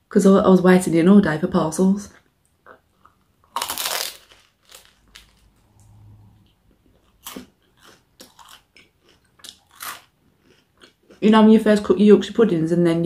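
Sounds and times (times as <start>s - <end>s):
crunchy bite and chewing: 2.6s - 5.6s, 6.8s - 11.2s.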